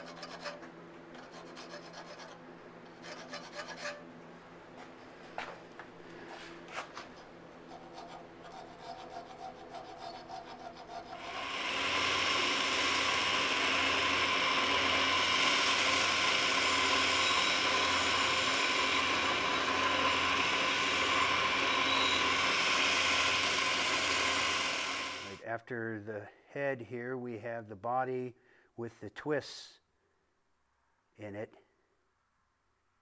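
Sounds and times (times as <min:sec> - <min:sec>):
steel file rasping on metal: 0:00.0 - 0:04.0, 0:07.7 - 0:25.3
electric belt grinder running: 0:11.1 - 0:25.4.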